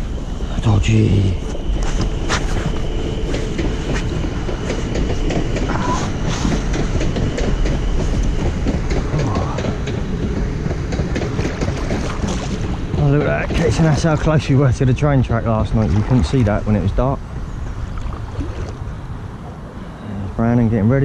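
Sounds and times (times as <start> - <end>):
wheels clacking on rails: 0.0 - 15.6
train rumble: 0.0 - 21.0.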